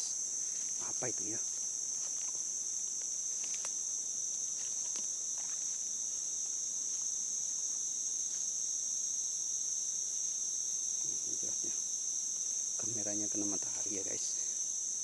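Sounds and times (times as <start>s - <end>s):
chorus of forest insects: 0.0s - 15.0s
footsteps through undergrowth: 0.4s - 8.5s.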